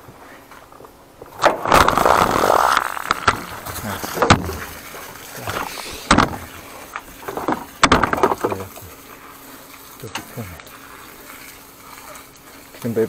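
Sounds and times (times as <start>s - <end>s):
hose fittings clattering and knocking: 3.1s - 8.9s.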